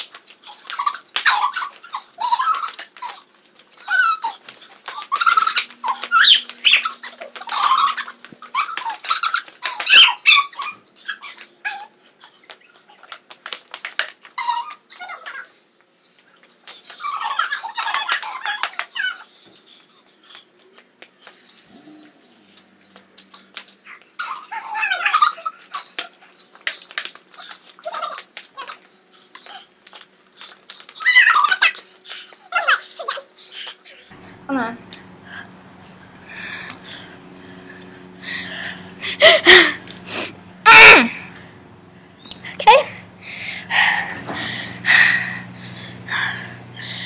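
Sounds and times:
girls squealing and giggling: 0.5s - 11.4s, 35.0s - 41.4s
pressure sprayer hissing: 34.1s - 47.0s
girls shrieking and squealing: 40.6s - 41.3s.

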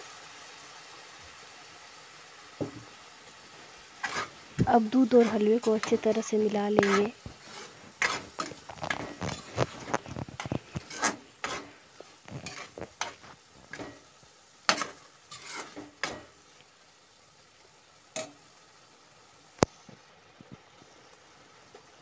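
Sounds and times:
metal spatula scraping a pan: 2.6s - 16.4s.

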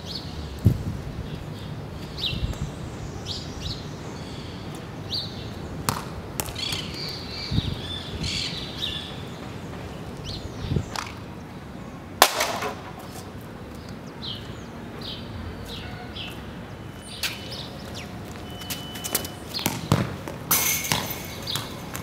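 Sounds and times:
football kick on concrete: 5.9s - 6.9s, 19.0s - 22.0s.

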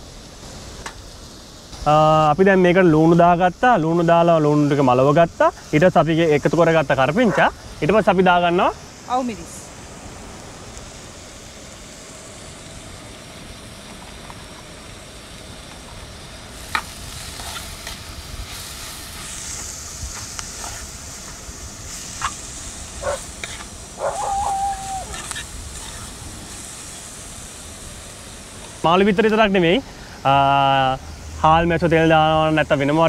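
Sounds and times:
onions sizzling in oil: 0.0s - 33.0s.

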